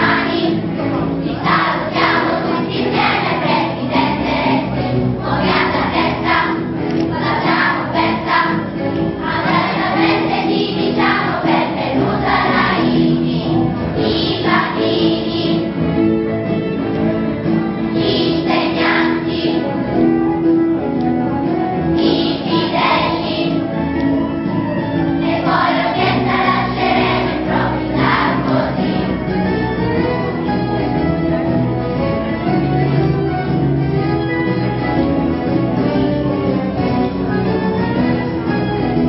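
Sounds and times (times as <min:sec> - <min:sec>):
children's choir singing: 0:00.0 - 0:16.2, 0:17.7 - 0:20.1, 0:22.0 - 0:29.4.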